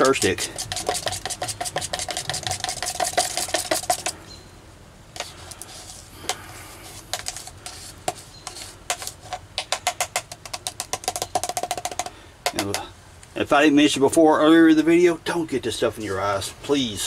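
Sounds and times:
brush scraping plastic cup: 0.0s - 4.2s, 5.2s - 12.8s.

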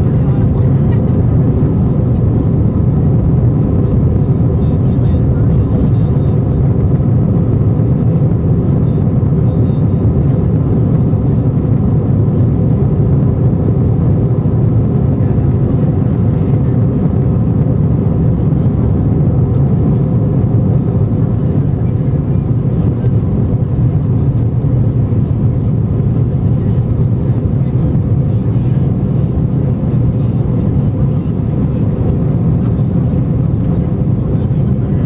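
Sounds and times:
jet engines droning in cabin: 0.0s - 35.0s.

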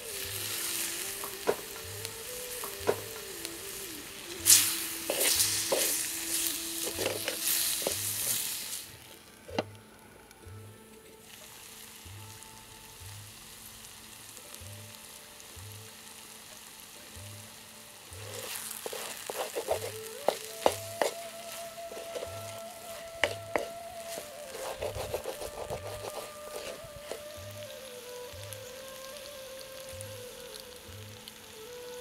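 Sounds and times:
curry sizzling in a pot: 0.0s - 32.0s
wooden spoon scraping clay pot: 6.8s - 8.0s, 18.2s - 27.2s.

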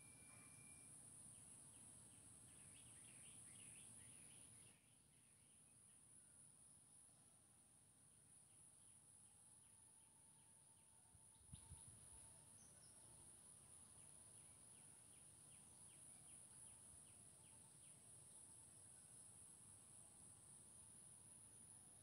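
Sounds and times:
faint chirps: 0.0s - 6.6s.

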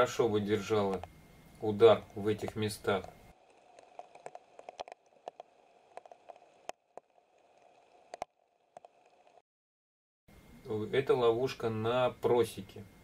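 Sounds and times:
low hiss: 0.0s - 6.7s, 10.3s - 13.0s
raindrops tapping on wet leaves: 3.4s - 9.4s.

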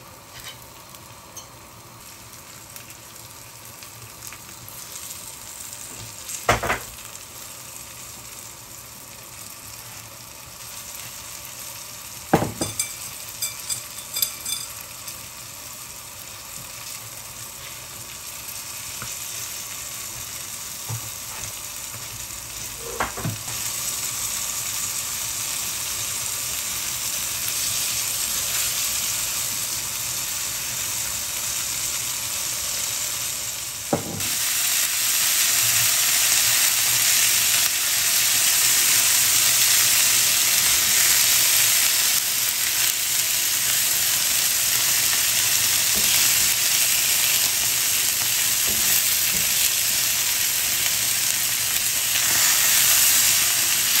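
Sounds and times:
fish sizzling on griddle: 0.0s - 54.0s.

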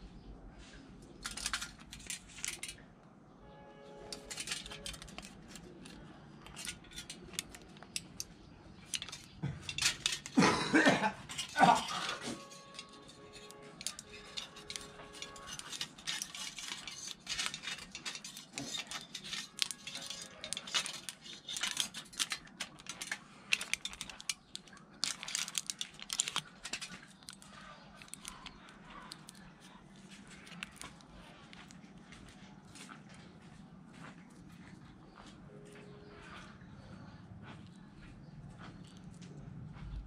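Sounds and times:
aluminium foil crinkling: 1.1s - 2.8s, 4.0s - 33.0s.

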